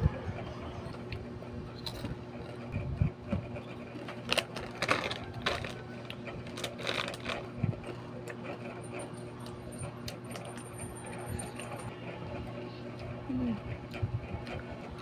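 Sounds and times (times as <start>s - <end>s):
plastic wrappers crinkling: 4.1s - 7.6s.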